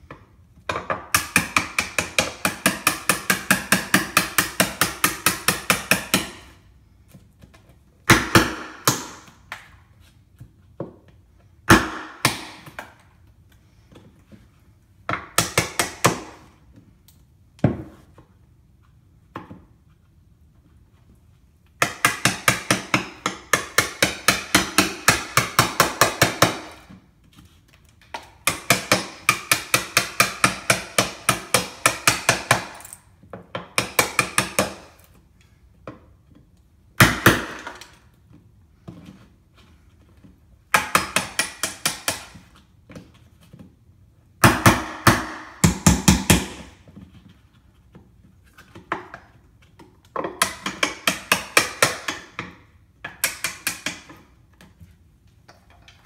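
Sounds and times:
hammer striking wood chisel: 0:00.7 - 0:06.6, 0:08.0 - 0:09.6, 0:11.7 - 0:13.0, 0:15.1 - 0:16.5, 0:21.8 - 0:26.9, 0:28.1 - 0:35.0, 0:37.0 - 0:38.0, 0:40.7 - 0:42.5, 0:44.4 - 0:46.8, 0:50.1 - 0:54.3.

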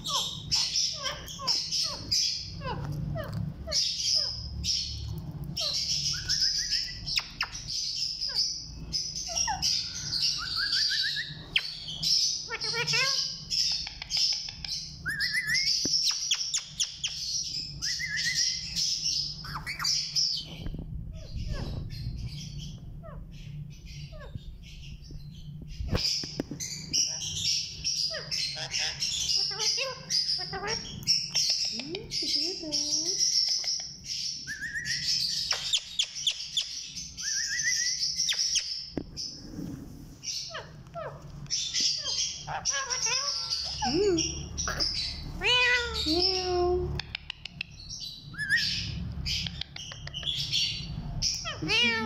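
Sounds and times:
parakeet sharp calls: 0:00.0 - 0:20.6, 0:25.8 - 0:31.7, 0:40.2 - 0:46.2
parakeets chattering: 0:00.0 - 0:52.0.

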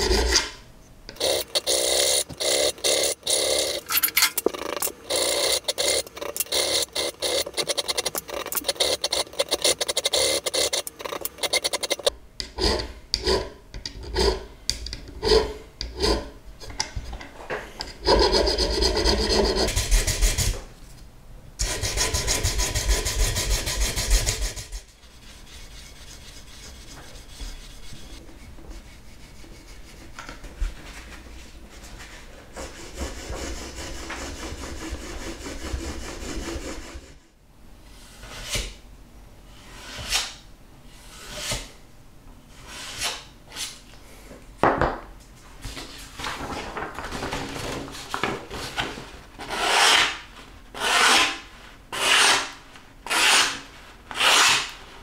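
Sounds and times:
hand file rasping on steel: 0:01.1 - 0:03.9, 0:04.6 - 0:14.5, 0:21.6 - 0:28.2, 0:32.6 - 0:37.2, 0:50.8 - 0:52.5, 0:53.1 - 0:54.7
abrasive paper rubbing metal: 0:01.2 - 0:12.1, 0:21.6 - 0:30.1.

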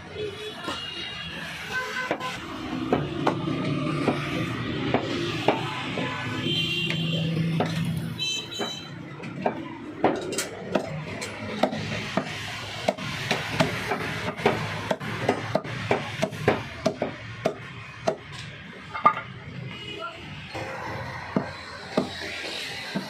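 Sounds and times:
cleaver chopping ribs on wood: 0:08.6 - 0:18.3.

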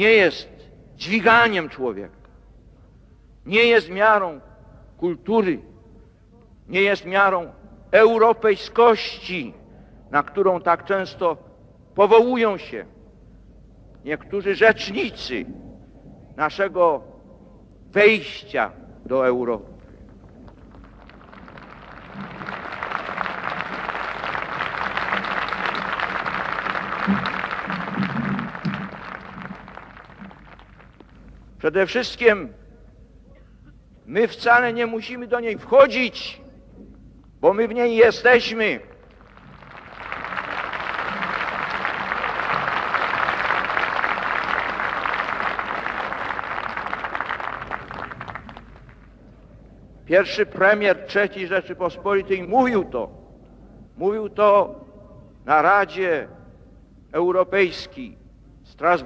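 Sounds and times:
crowd applauding: 0:20.4 - 0:31.4, 0:39.0 - 0:49.2.

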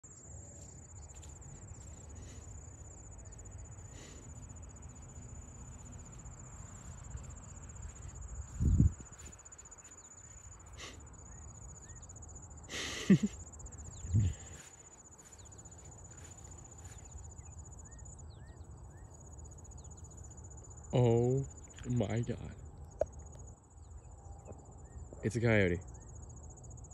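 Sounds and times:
insects trilling: 0:00.0 - 0:26.9
low microphone rumble: 0:13.9 - 0:14.6.

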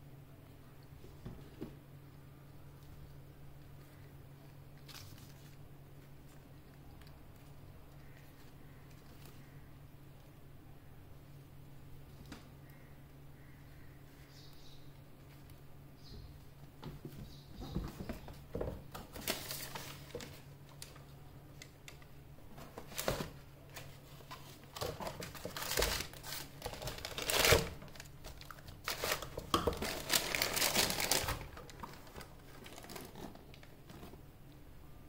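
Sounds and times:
tissue paper crinkling: 0:04.8 - 0:07.6, 0:22.8 - 0:34.1.

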